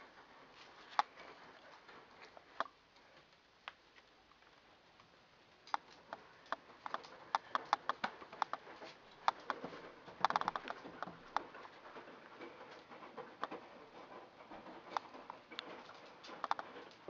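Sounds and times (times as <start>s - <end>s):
dog claws clicking on hard floor: 5.6s - 17.0s.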